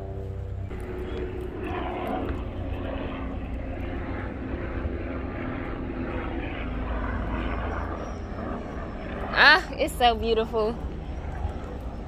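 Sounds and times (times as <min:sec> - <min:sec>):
aircraft engine drone: 0:00.0 - 0:12.0.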